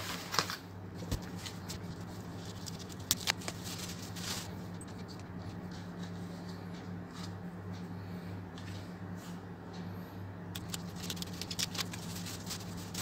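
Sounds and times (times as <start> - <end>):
packaging rustling: 0.0 - 5.5, 10.6 - 13.0
steady low hum: 0.0 - 13.0
sharp clicks: 10.5 - 12.2.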